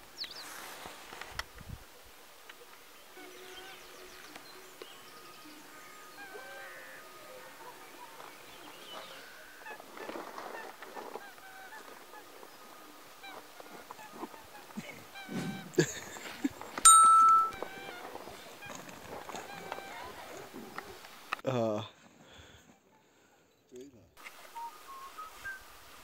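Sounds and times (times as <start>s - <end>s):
soft rustle: 0.2s - 5.0s, 7.7s - 16.9s, 17.5s - 21.4s
waterfowl honking: 3.2s - 15.8s.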